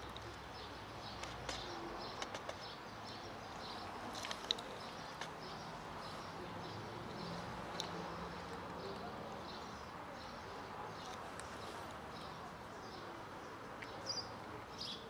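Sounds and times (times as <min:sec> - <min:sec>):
birds chirping: 0:00.0 - 0:15.0
cats chewing: 0:03.5 - 0:09.6.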